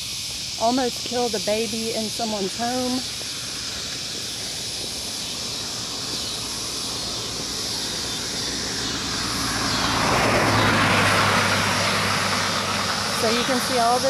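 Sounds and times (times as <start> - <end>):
car driving by: 3.2 - 14.0.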